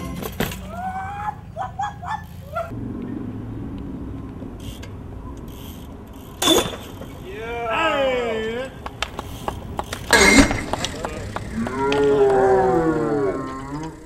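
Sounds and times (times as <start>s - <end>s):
bike landing on concrete: 0.0s - 1.0s, 6.1s - 7.2s, 8.9s - 12.8s
low traffic-like rumble: 0.0s - 14.0s.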